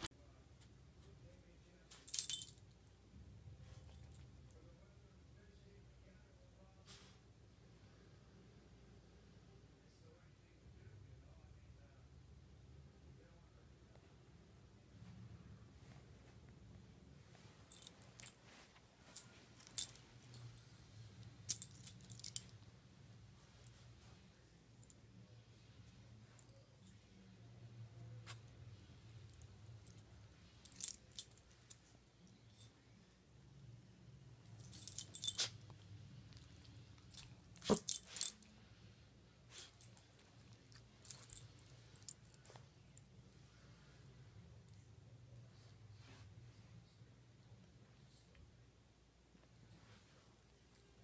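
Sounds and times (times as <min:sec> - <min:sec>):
dog collar tag jingling: 0:01.9 - 0:02.6, 0:34.5 - 0:35.6, 0:36.3 - 0:38.5, 0:39.5 - 0:42.6.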